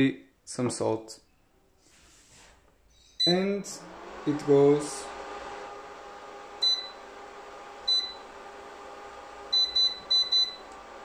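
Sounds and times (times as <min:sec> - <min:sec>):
hob control panel beeping: 0:09.5 - 0:10.7.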